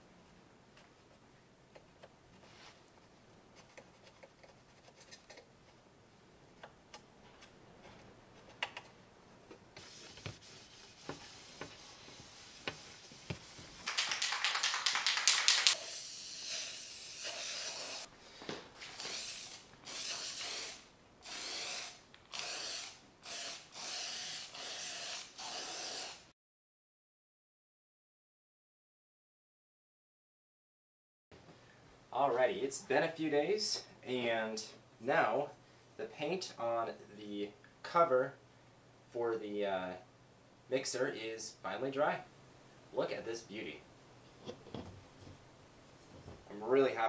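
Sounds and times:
spray paint can hissing: 0:12.3 - 0:18.1, 0:19.0 - 0:26.2.

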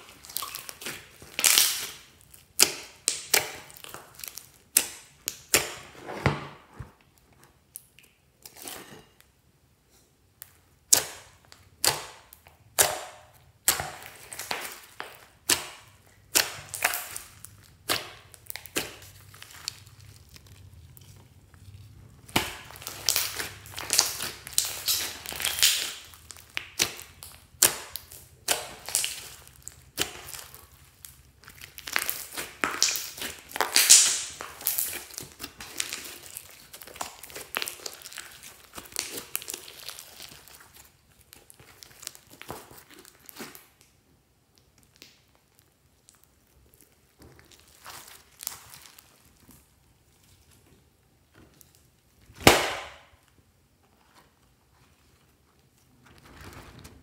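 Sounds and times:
slime squelching: 0:00.0 - 0:06.0, 0:10.2 - 0:55.8.

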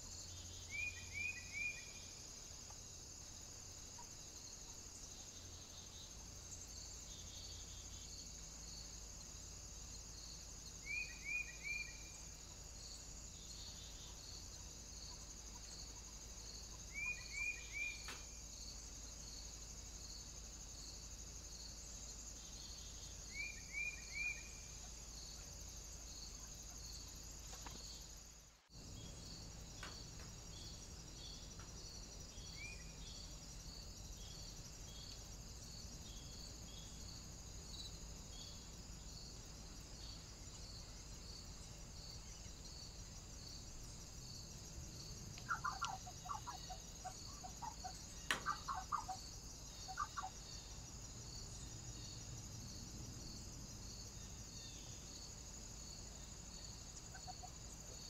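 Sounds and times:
insects chirring: 0:00.0 - 0:58.0
bird calling: 0:45.4 - 0:49.2, 0:49.9 - 0:50.4.

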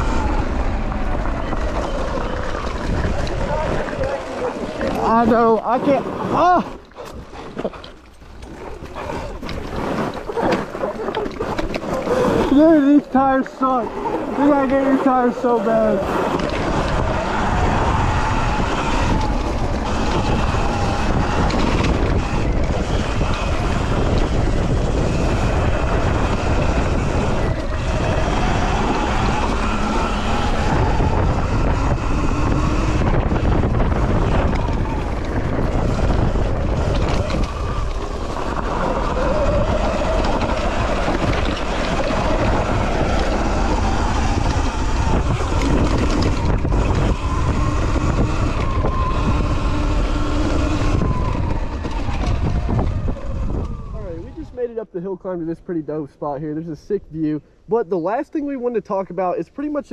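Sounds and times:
wind buffeting microphone: 0:00.0 - 0:59.9
electric motor whine: 0:12.0 - 0:54.4.

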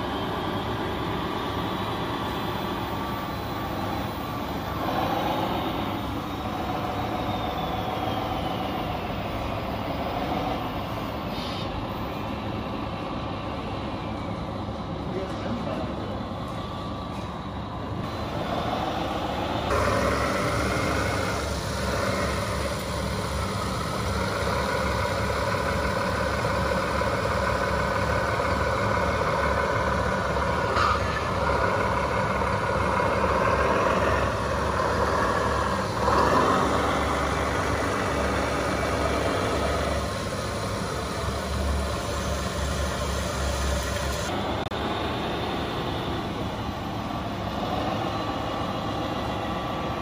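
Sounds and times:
diesel truck engine sound: 0:00.0 - 0:50.0.

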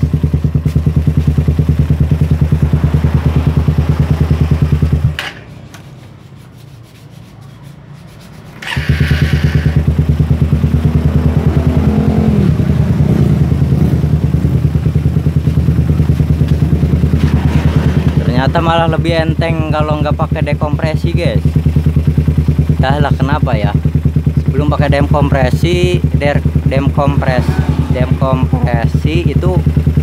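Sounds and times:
motorcycle engine idling: 0:00.0 - 0:06.3, 0:08.4 - 0:30.0
engine throttle blips: 0:08.4 - 0:20.5, 0:21.4 - 0:30.0
electric starter cranking: 0:08.5 - 0:09.9.

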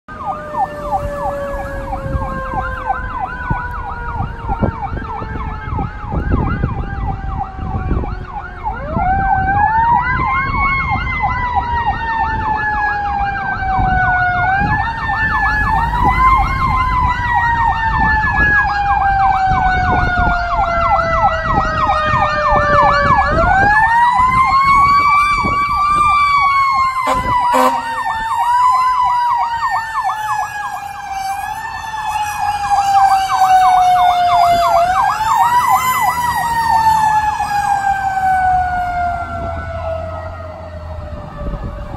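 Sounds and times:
fire engine siren wailing: 0:00.1 - 0:41.9
rapid siren yelp: 0:00.1 - 0:41.9
truck engine rumble: 0:00.1 - 0:41.9.

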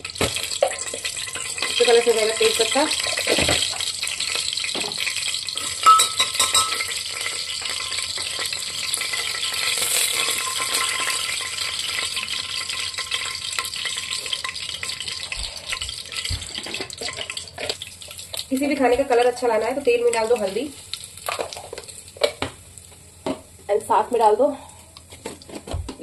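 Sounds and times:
hot oil sizzling in a pot: 0:00.0 - 0:25.0
spoon clinking against metal pot: 0:05.8 - 0:06.9.

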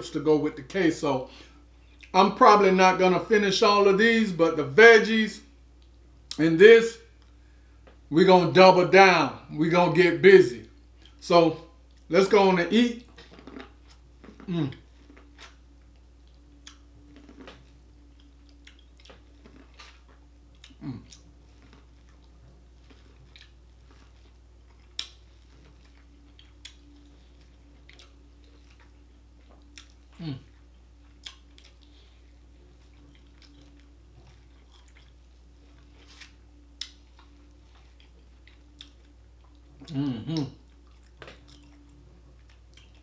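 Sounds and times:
man eating corn on the cob: 0:13.0 - 0:43.0.

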